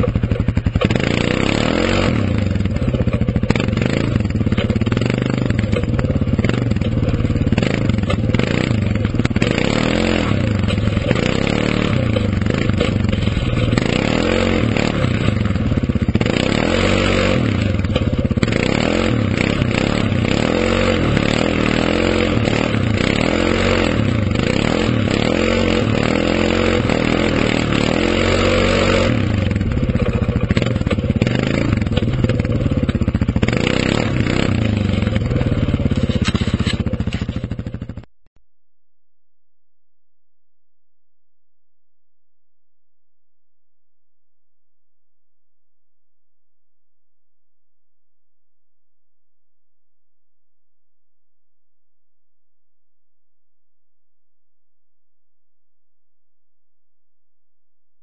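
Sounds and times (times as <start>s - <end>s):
atv engine revving under load: 0.0s - 38.1s.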